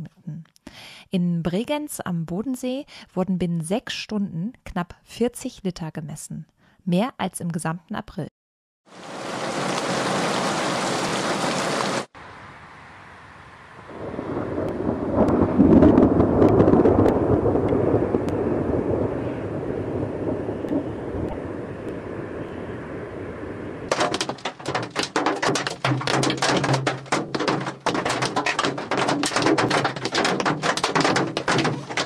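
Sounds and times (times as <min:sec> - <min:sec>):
thunder rumbling: 0:13.4 - 0:32.0
hail pelting car roof: 0:23.9 - 0:32.0.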